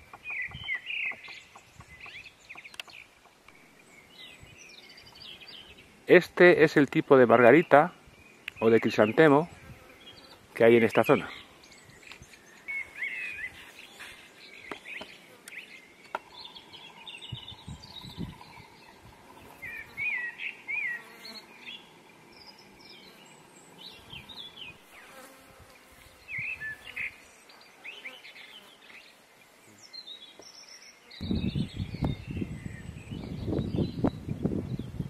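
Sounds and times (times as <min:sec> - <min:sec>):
birds chirping: 0:00.0 - 0:35.0
flying insect buzzing: 0:15.2 - 0:29.9.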